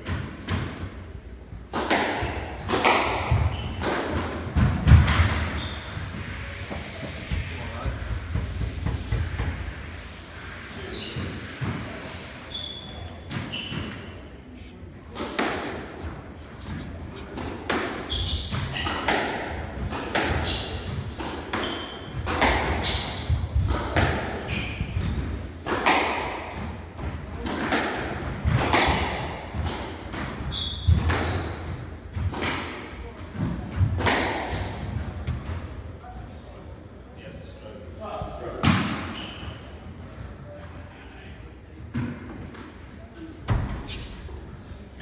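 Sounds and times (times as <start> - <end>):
squash ball hitting rackets: 1.7 - 5.6, 15.1 - 15.9, 17.3 - 35.4
shoes squeaking on wooden floor: 12.5 - 14.7, 17.9 - 19.1.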